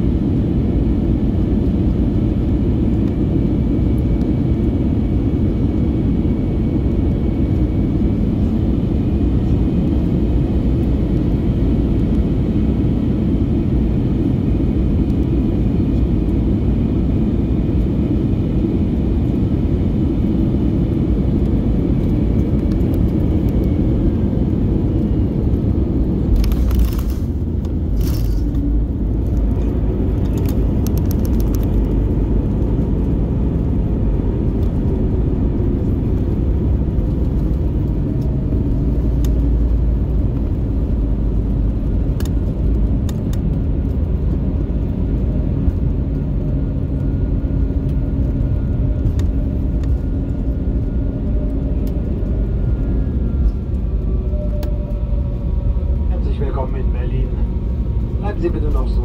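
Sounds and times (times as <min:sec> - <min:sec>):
aircraft cabin rumble: 0:00.0 - 0:59.0.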